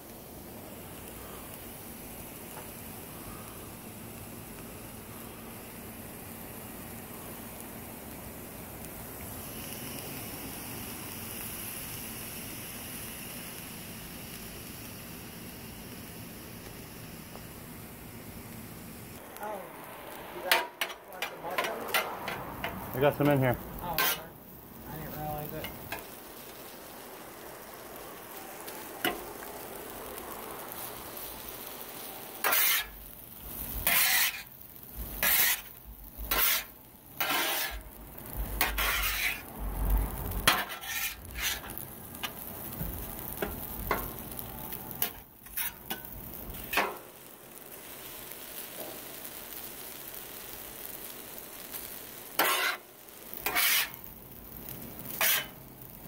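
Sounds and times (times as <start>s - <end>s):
rice sizzling on a griddle: 0.0s - 56.0s
metal spatula scraping and chopping: 20.5s - 22.8s, 23.9s - 24.3s, 32.4s - 33.0s, 33.7s - 34.5s, 35.2s - 37.8s, 38.6s - 39.4s, 40.4s - 42.5s, 45.0s - 47.0s, 52.4s - 54.1s, 55.1s - 55.6s.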